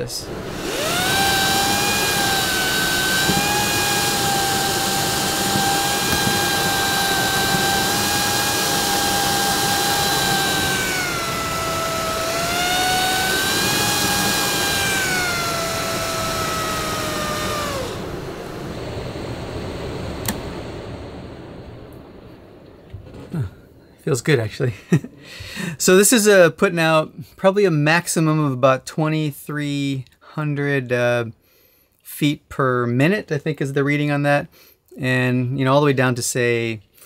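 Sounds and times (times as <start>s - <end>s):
anemometer impeller whine: 0.0s - 25.7s
air conditioner blower rushing air: 0.0s - 26.0s
click: 20.2s - 20.4s.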